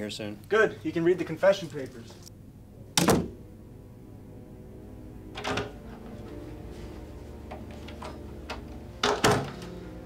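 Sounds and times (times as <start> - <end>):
low background music: 0.0 - 10.0
door sound: 5.3 - 6.0, 7.5 - 9.8.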